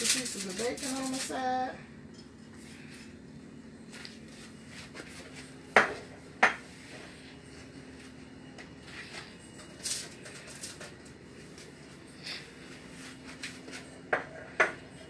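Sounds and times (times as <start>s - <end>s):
faint steady hum: 0.0s - 15.0s
utensils clinking: 9.0s - 11.2s.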